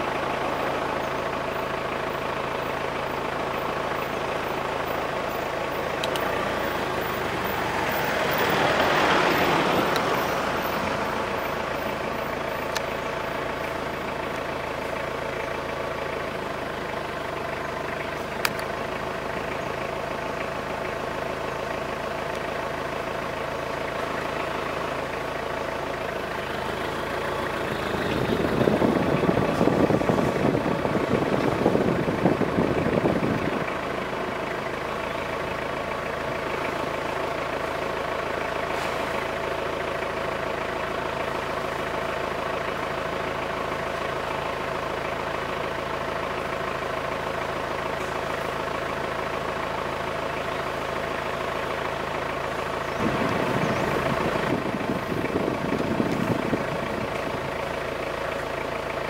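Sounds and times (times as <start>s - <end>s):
vehicle engine idling: 0.0s - 59.0s
loud rough noise: 26.7s - 37.9s, 52.6s - 58.4s.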